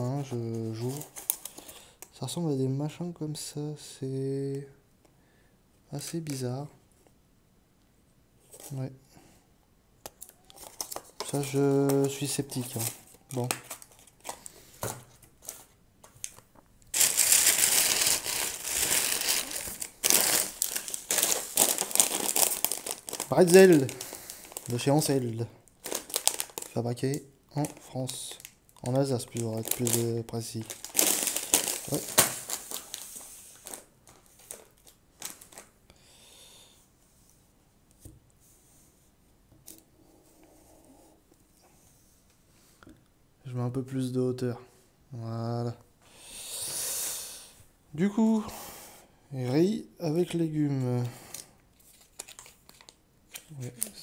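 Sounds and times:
plastic snack bag crinkling: 0:00.0 - 0:02.2, 0:10.1 - 0:14.7, 0:15.4 - 0:35.8, 0:51.1 - 0:54.0.

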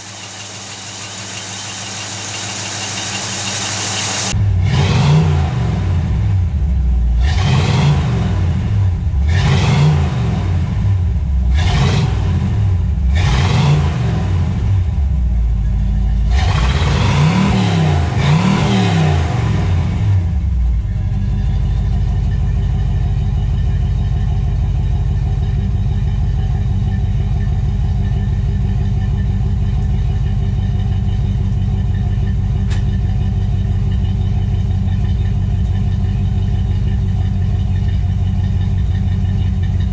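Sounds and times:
car engine revving: 0:00.0 - 0:15.1, 0:16.2 - 0:20.8
car engine idling: 0:00.0 - 0:39.9.

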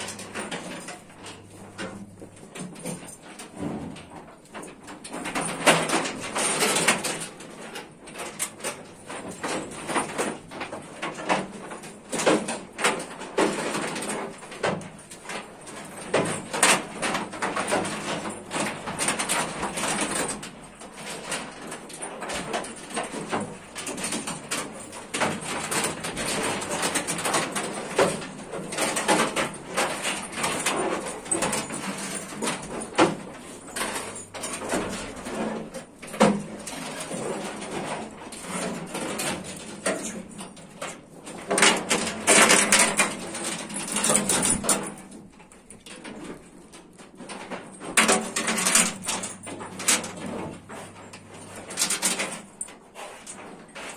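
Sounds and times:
clicks and knocks in cattle barn: 0:00.0 - 0:53.9.

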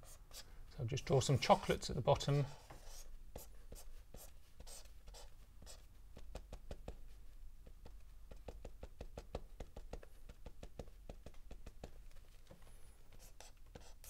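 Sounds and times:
pen drawing on paper: 0:02.6 - 0:06.6.

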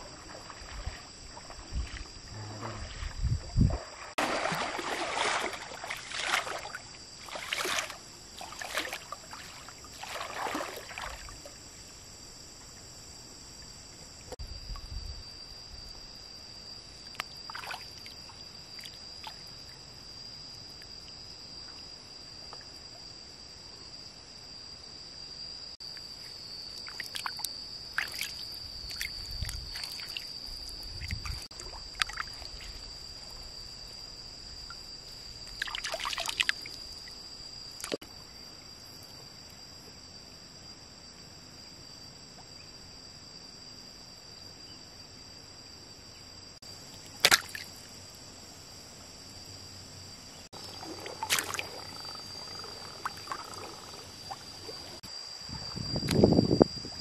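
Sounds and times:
water splashing and sloshing: 0:00.0 - 0:11.9, 0:17.1 - 0:20.0, 0:25.9 - 0:38.2, 0:46.6 - 0:48.1, 0:50.5 - 0:56.3
high-pitched insect drone: 0:00.0 - 0:57.0.

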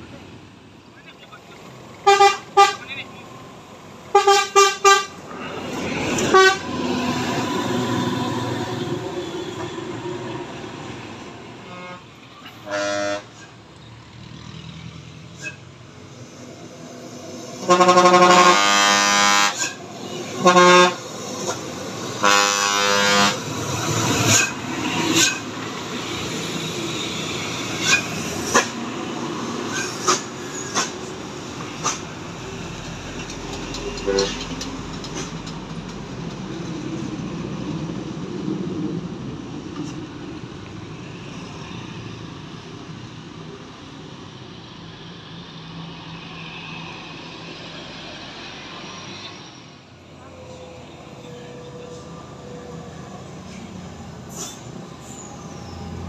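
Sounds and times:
heavy diesel vehicles passing: 0:00.0 - 0:56.0
bus and truck horns: 0:02.0 - 0:03.2, 0:04.0 - 0:09.9, 0:11.6 - 0:13.5, 0:17.5 - 0:25.5, 0:26.6 - 0:28.9, 0:33.8 - 0:34.5, 0:50.2 - 0:54.7.

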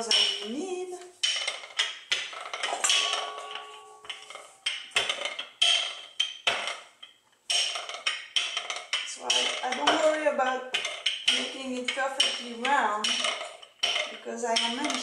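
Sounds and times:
rolling pin clacking on wooden board: 0:00.0 - 0:15.0.

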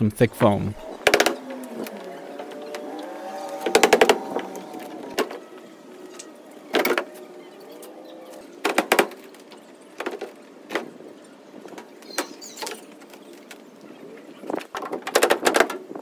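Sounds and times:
wooden crate panels knocking: 0:01.0 - 0:02.6, 0:03.6 - 0:05.4, 0:08.6 - 0:09.4, 0:14.6 - 0:16.0.

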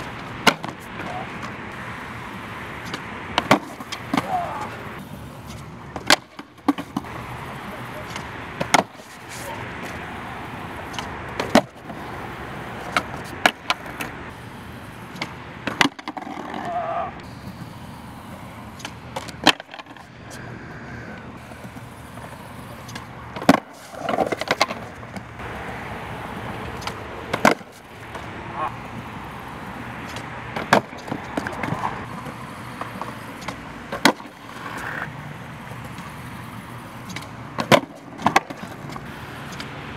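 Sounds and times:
skateboard slapping down: 0:00.0 - 0:01.6, 0:02.8 - 0:04.8, 0:05.4 - 0:10.0, 0:10.9 - 0:12.0, 0:12.8 - 0:14.2, 0:15.1 - 0:17.1, 0:18.7 - 0:20.1, 0:21.6 - 0:25.3, 0:26.7 - 0:28.7, 0:30.0 - 0:31.9, 0:32.8 - 0:35.1, 0:37.0 - 0:39.7
skateboard tail cracking: 0:00.0 - 0:01.6, 0:02.8 - 0:04.8, 0:05.4 - 0:10.0, 0:10.9 - 0:12.1, 0:15.1 - 0:17.1, 0:18.7 - 0:25.3, 0:26.6 - 0:28.7, 0:30.0 - 0:35.1, 0:35.7 - 0:39.7
skateboard wheels rolling on concrete: 0:00.0 - 0:39.9.

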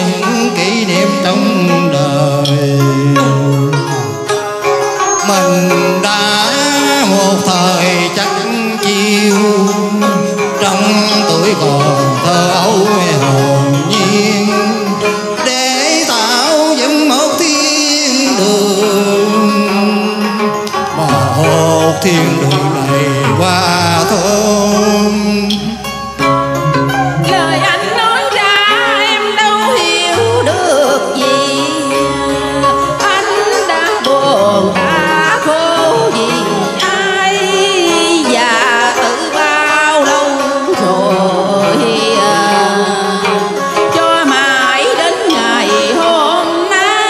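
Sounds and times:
instrumental accompaniment: 0:00.0 - 0:47.0
traditional opera music: 0:00.0 - 0:47.0
woman singing: 0:27.1 - 0:47.0.

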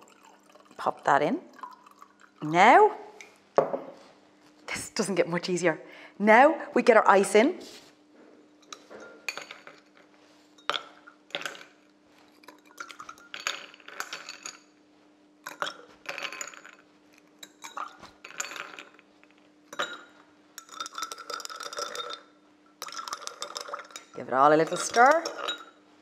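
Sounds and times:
ice clinking against glasses: 0:08.6 - 0:09.9, 0:10.6 - 0:11.8, 0:12.5 - 0:14.7, 0:15.5 - 0:16.8, 0:17.4 - 0:19.0, 0:19.7 - 0:25.8
metal spoon scraping glass bowl: 0:24.0 - 0:25.7.

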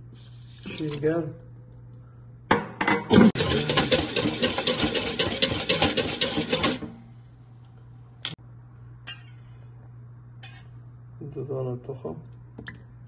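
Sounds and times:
whisk clattering in metal bowl: 0:03.4 - 0:06.9.

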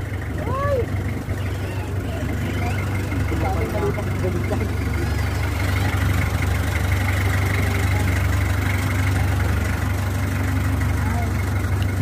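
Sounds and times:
boat engine low hum: 0:00.0 - 0:12.0
thin steady whine: 0:01.2 - 0:08.4.

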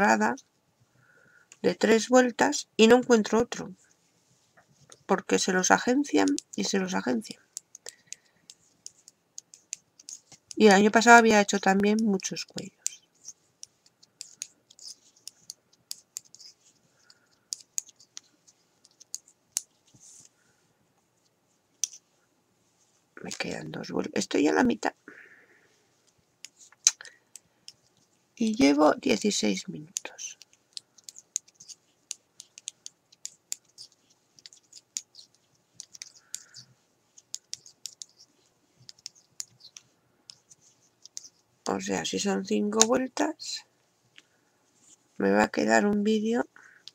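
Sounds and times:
metal knitting needles clicking: 0:06.1 - 0:10.6, 0:11.4 - 0:19.7, 0:26.4 - 0:41.8.

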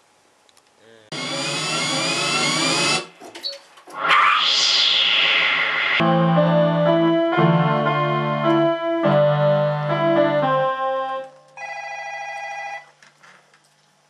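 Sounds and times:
electronic keyboard organ chords: 0:06.0 - 0:11.6.

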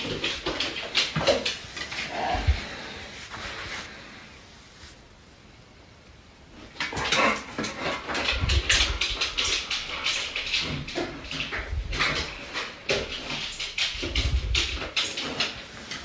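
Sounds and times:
dog claws clicking on floor: 0:00.0 - 0:02.6, 0:06.7 - 0:16.0.

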